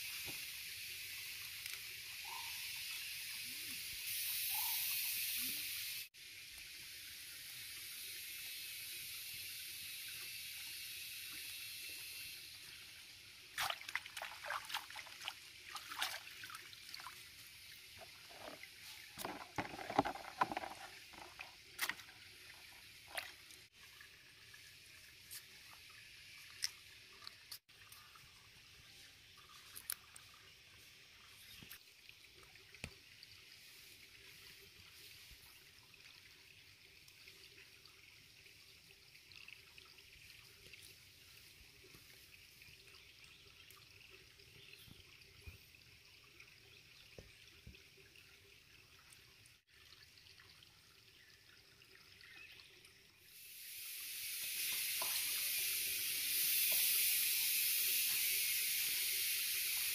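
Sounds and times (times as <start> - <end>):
water running from a tap: 5.0 - 27.6, 53.3 - 59.9.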